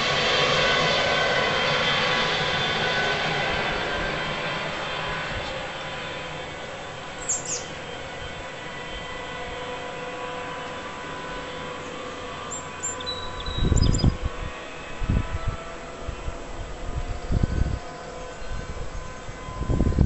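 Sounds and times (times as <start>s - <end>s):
aircraft engine drone: 0.0s - 20.0s
birds chirping: 5.4s - 9.0s, 11.8s - 14.2s
loud low rumble: 13.0s - 20.0s.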